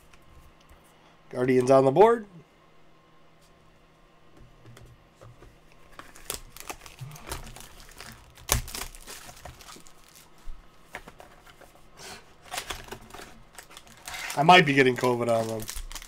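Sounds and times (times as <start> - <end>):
plastic wrapping crinkling and tearing: 5.9 - 10.4, 12.4 - 16.0.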